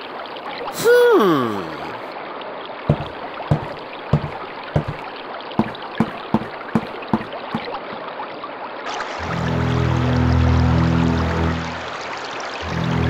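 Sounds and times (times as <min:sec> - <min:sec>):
water trickling: 0:00.0 - 0:13.0
music: 0:09.2 - 0:13.0.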